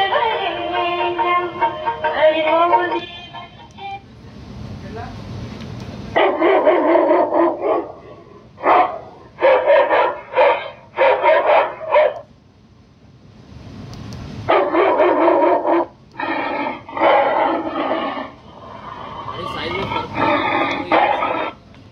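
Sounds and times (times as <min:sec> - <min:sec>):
megaphone dog bark sound effect: 0:06.2 - 0:08.0, 0:08.6 - 0:12.2, 0:14.5 - 0:15.9, 0:19.7 - 0:21.6.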